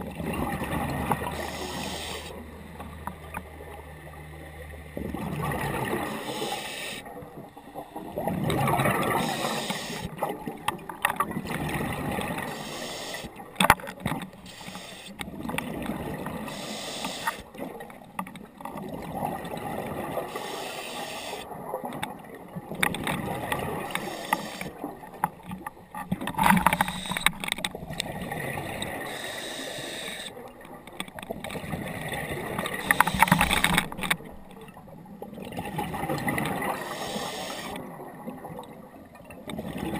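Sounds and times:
diver breathing through regulator: 1.3 - 2.4, 6.0 - 7.8, 8.9 - 10.2, 12.4 - 13.4, 14.4 - 15.2, 16.4 - 17.5, 20.2 - 21.5, 23.8 - 24.8, 28.9 - 30.4, 32.7 - 33.6, 36.8 - 37.8.

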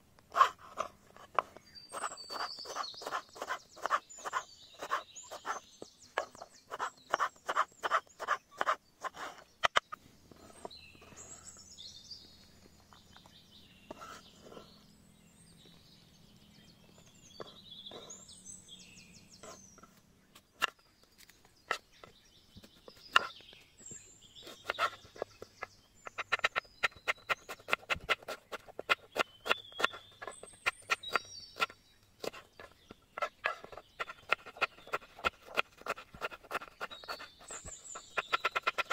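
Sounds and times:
birds chirping: 0.0 - 38.9
knife chopping on wooden board: 1.4 - 5.6, 6.2 - 9.8, 23.1 - 23.3, 33.2 - 38.9.

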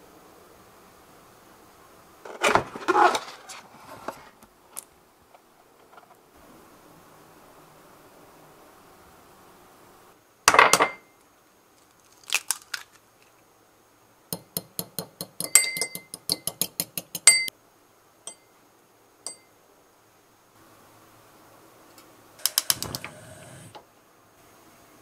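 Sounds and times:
fork clinking against ceramic bowl: 15.3 - 17.5.

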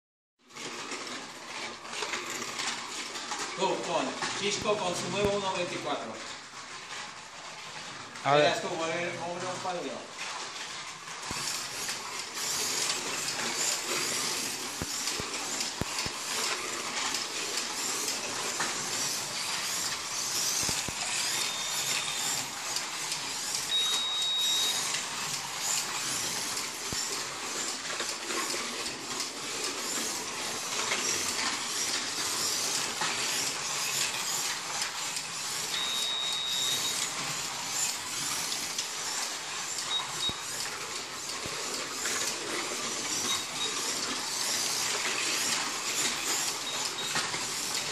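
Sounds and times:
slot car motor whirring: 0.5 - 47.9
tyres hissing along slot: 11.3 - 47.9.

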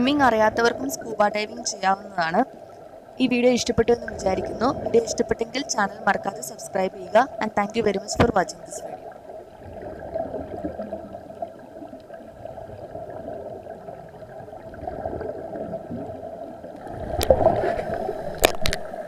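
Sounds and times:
steady hum: 0.0 - 9.0
exhaled bubbles gurgling underwater: 0.0 - 19.0.

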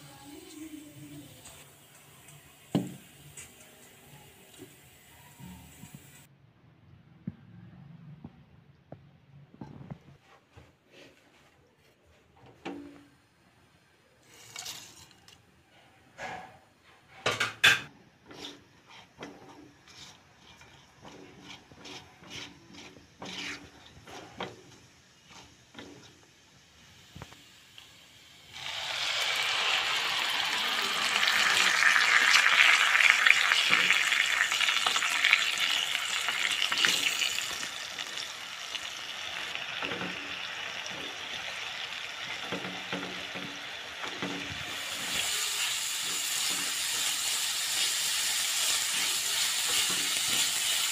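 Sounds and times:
spatula scraping in pan: 14.2 - 15.4, 16.2 - 27.3, 29.4 - 50.9
paste sizzling in hot oil: 18.2 - 50.9.

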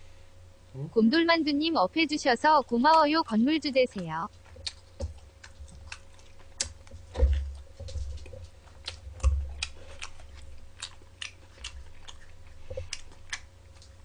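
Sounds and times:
man chewing pizza: 3.2 - 14.0
wet mouth clicks: 4.4 - 6.9, 8.8 - 14.0.

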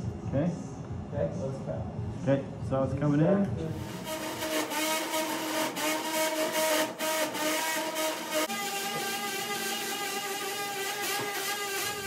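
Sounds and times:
bone saw whining: 3.7 - 12.0.

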